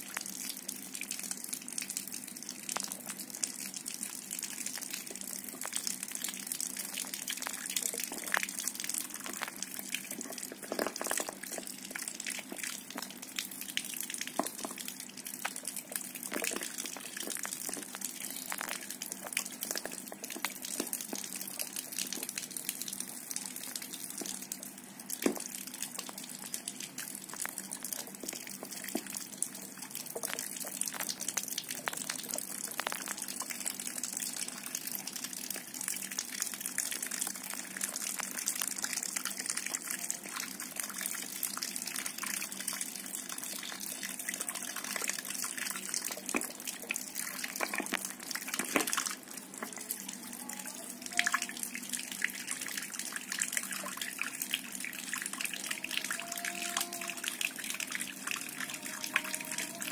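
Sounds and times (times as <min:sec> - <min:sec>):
tap water splashing on concrete: 0:25.2 - 0:26.2.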